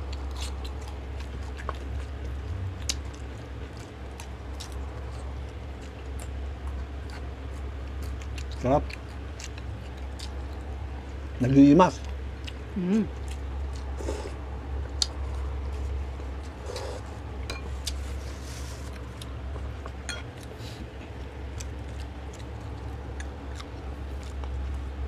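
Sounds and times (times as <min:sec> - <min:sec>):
steady low hum: 0:00.0 - 0:25.0
wet chewing sounds: 0:00.0 - 0:25.0
spoon clinking against glass dish: 0:17.5 - 0:17.7.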